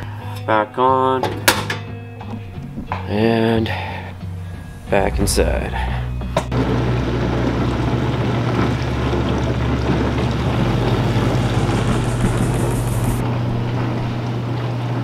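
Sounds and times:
water rushing: 4.5 - 15.0
dishwasher motor hum: 6.5 - 15.0.

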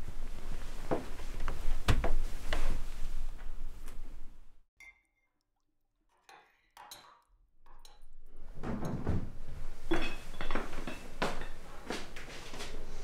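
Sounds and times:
dishes and cutlery clattering: 9.8 - 11.7.

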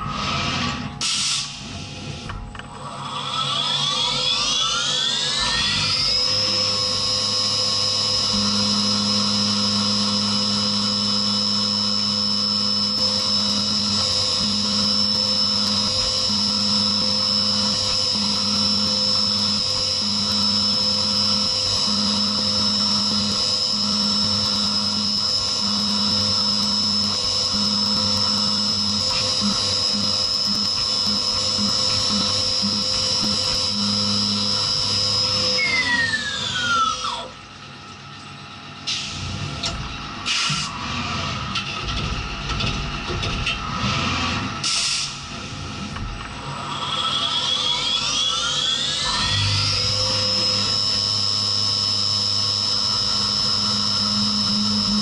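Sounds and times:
mill spindle high whine: 0.0 - 55.0
low hum: 5.4 - 35.7, 49.0 - 55.0.

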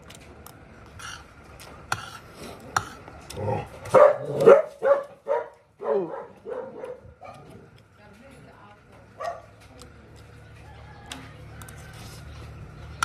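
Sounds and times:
dog barking and yelping: 3.9 - 7.6.

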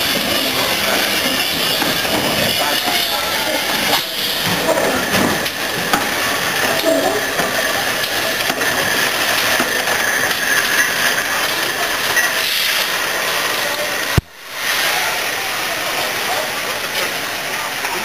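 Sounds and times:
steam locomotive hissing steam: 0.0 - 18.0.

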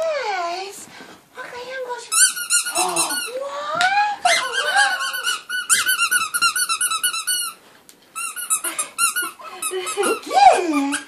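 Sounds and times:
squeaky dog toy squeaking: 2.1 - 3.4, 4.3 - 7.6, 8.2 - 11.0.

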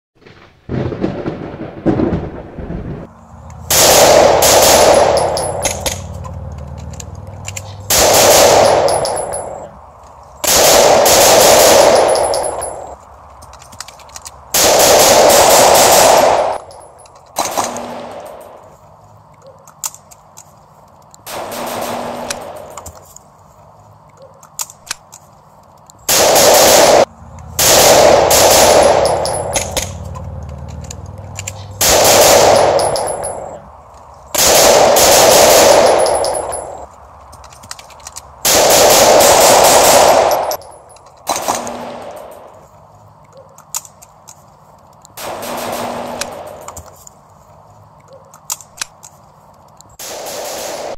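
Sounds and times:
automatic gunfire bursts: 3.7 - 5.2, 7.9 - 8.9, 10.5 - 12.2, 14.6 - 16.6, 26.1 - 29.2, 31.8 - 32.9, 34.4 - 36.1, 38.4 - 40.4
single gunshots: 3.7 - 5.2, 7.8 - 8.9, 10.4 - 12.1, 14.6 - 16.6, 21.3 - 22.8, 26.1 - 29.9, 31.7 - 32.8, 45.2 - 46.7, 50.0 - 50.9.

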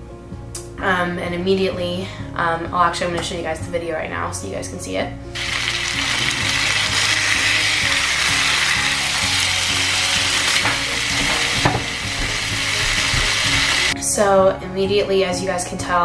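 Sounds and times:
chicken sizzling in oil: 5.4 - 14.0
spatula knocks in skillet: 10.6 - 12.4.

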